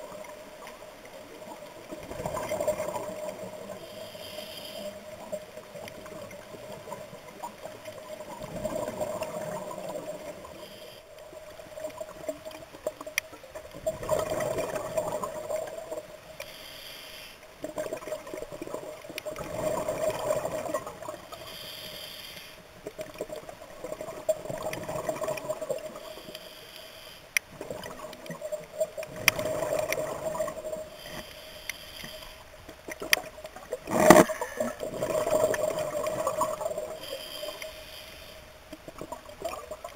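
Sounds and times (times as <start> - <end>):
inhalation hiss: 3.8 - 5.0, 16.4 - 17.4, 21.3 - 22.6, 26.0 - 27.3, 30.9 - 32.4, 37.0 - 38.5
regulator exhale bubbling: 33.9 - 37.8.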